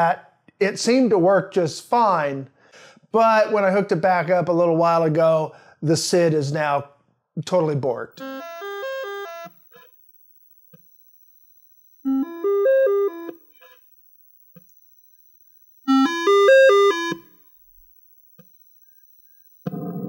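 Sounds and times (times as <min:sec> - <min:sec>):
buzzy chiptune melody: 0:08.2 - 0:09.9, 0:15.9 - 0:17.3
faint high whine: 0:08.2 - 0:20.0.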